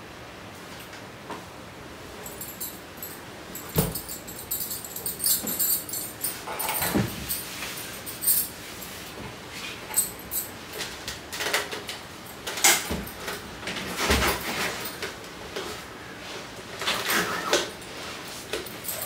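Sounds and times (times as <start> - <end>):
household objects knocking and rattling: 3.6 - 7.4.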